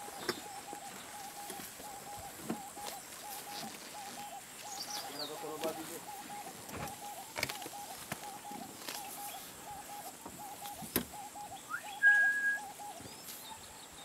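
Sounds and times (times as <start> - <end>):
bird calling low double notes: 0.0 - 13.2
loud steady whistle: 11.7 - 12.6.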